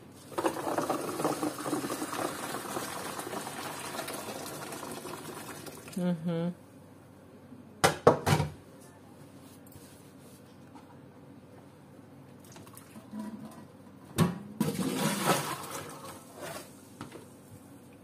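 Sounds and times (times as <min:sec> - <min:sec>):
beans draining in a colander: 0:00.1 - 0:06.0, 0:14.6 - 0:16.8
colander clattering: 0:00.3 - 0:02.9, 0:14.2 - 0:16.1
water splashing into sink: 0:00.3 - 0:06.0, 0:14.6 - 0:16.3.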